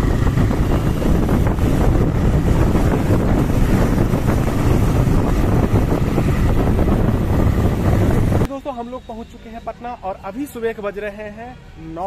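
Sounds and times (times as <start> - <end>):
wind buffeting microphone: 0.0 - 8.5.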